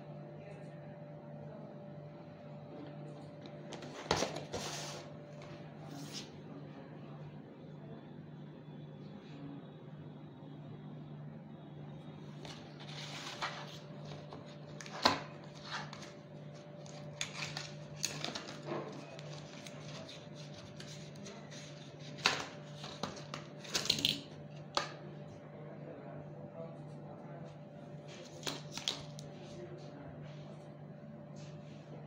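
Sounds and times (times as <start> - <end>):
packaging rustling: 12.5 - 24.2.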